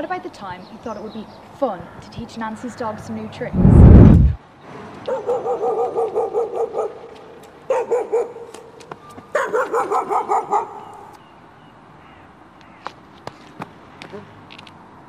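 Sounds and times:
dog barking: 5.1 - 8.7, 9.3 - 11.1.

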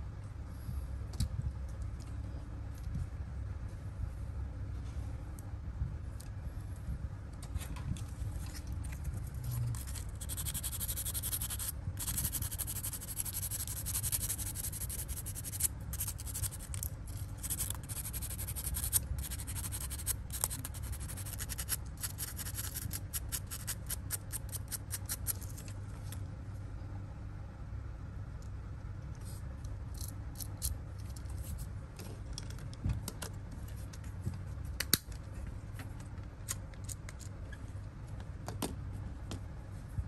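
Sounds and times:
low background hum: 0.0 - 40.0.

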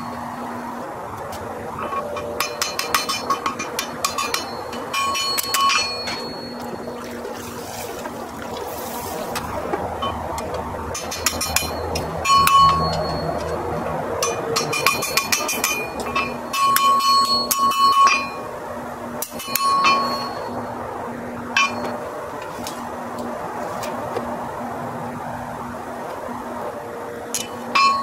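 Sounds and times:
hammer striking iron on anvil: 1.8 - 6.7, 10.9 - 13.6, 14.2 - 18.5, 19.2 - 20.4, 21.6 - 22.0, 27.4 - 28.0.

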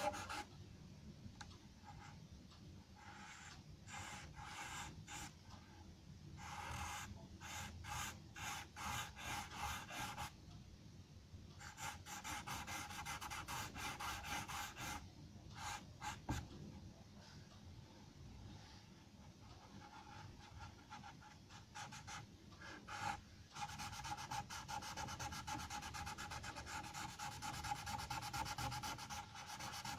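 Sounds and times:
pencil scratching on paper: 0.0 - 0.5, 3.0 - 5.4, 6.4 - 10.4, 11.6 - 15.0, 15.6 - 16.4, 19.5 - 29.9.

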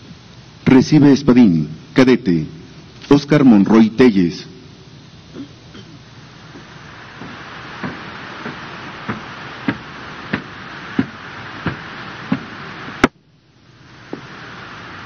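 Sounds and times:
background hiss: 0.0 - 15.0
boot steps on hard floor: 6.5 - 12.5.

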